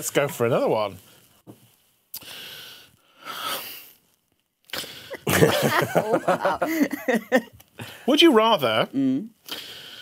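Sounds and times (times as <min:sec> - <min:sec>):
people laughing: 0:05.2 - 0:07.5.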